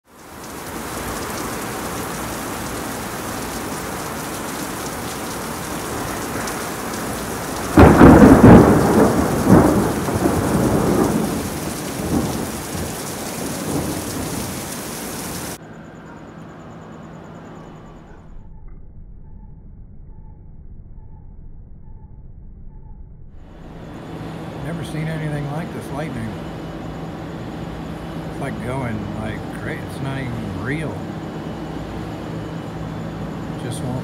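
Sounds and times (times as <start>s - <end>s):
heavy rain pouring: 0.0s - 15.6s, 23.5s - 34.0s
thunderclap rumbling: 0.2s - 15.6s, 23.4s - 34.0s.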